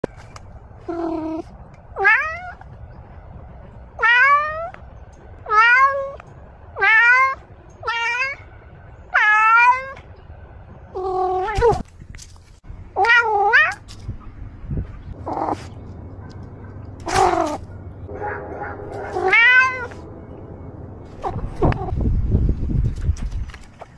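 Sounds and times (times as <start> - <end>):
cat meowing: 0.9 - 2.6, 4.0 - 4.8, 5.5 - 6.2, 6.8 - 8.5, 9.1 - 10.0, 11.0 - 11.8, 13.0 - 13.8, 19.1 - 20.0.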